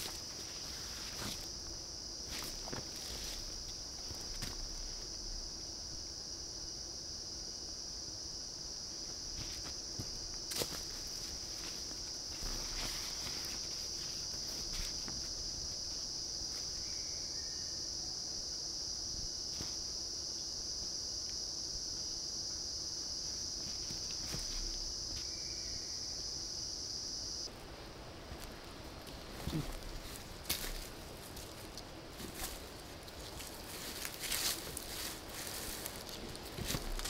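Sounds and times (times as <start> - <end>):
insects droning: 0.0 - 37.0
footsteps on dry leaves: 29.5 - 37.0.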